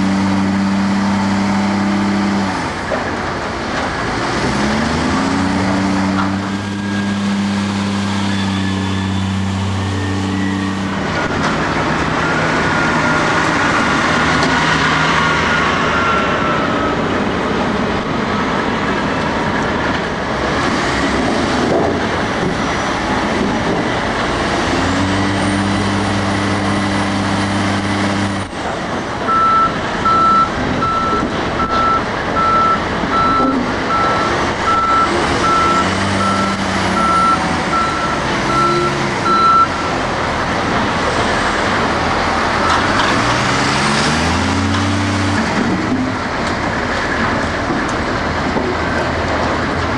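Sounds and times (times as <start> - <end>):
diesel engine running: 0.0 - 49.9
reversing alarm beeping: 15.5 - 17.0, 29.3 - 39.9.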